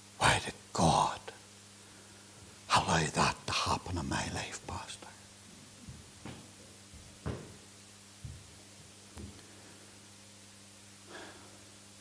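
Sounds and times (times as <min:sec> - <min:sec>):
faint electrical hum: 0:00.0 - 0:12.0
footsteps on carpeted stage: 0:05.5 - 0:09.4.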